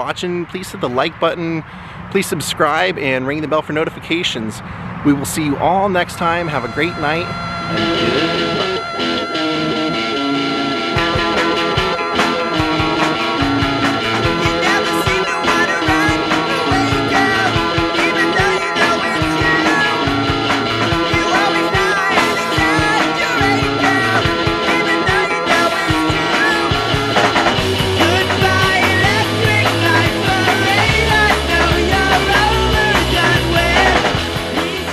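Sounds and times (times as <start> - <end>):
deep bass line: 5.8 - 34.9
rock music: 6.3 - 34.9.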